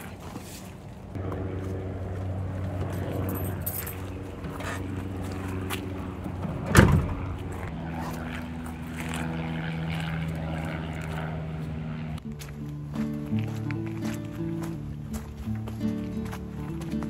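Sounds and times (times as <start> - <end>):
steady low hum: 0.0 - 17.0
car hatch slammed shut: 6.6 - 7.2.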